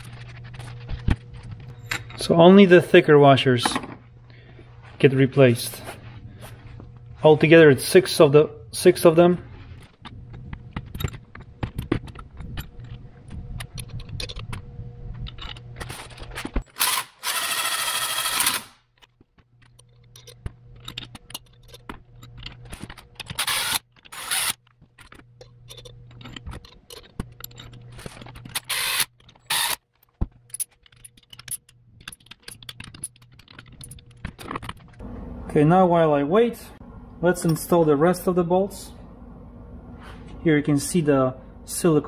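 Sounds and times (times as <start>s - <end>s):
bolts clinking on metal: 0.0s - 4.0s, 7.4s - 17.7s, 18.4s - 35.0s
cordless driver whining: 10.0s - 18.9s, 19.6s - 29.8s.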